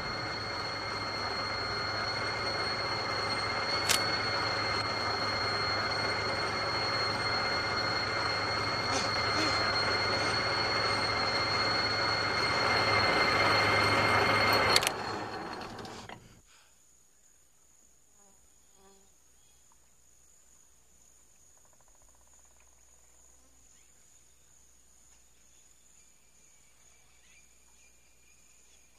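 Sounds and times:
minigun firing with high whine: 0.0 - 15.8
insects buzzing high note: 0.0 - 16.0.

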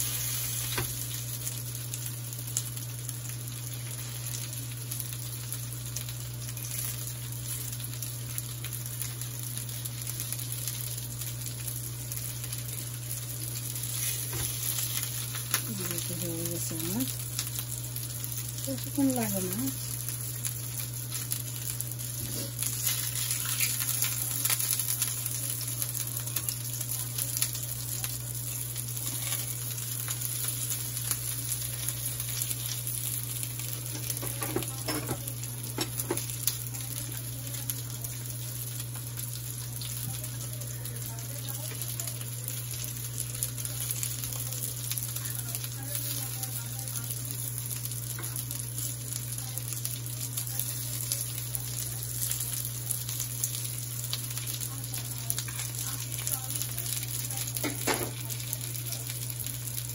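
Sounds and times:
patties sizzling in oil: 0.0 - 59.9.

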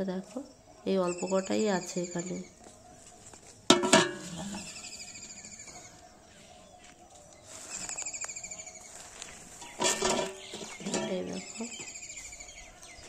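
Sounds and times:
metal bowl clank: 3.7 - 4.6, 9.6 - 11.5.

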